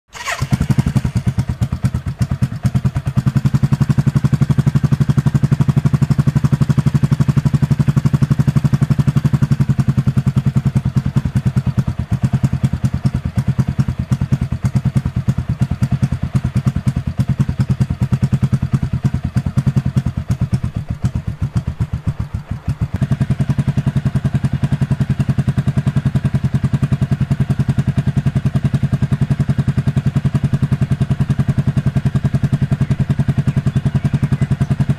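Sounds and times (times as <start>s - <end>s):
motorcycle engine running: 0.1s - 34.9s.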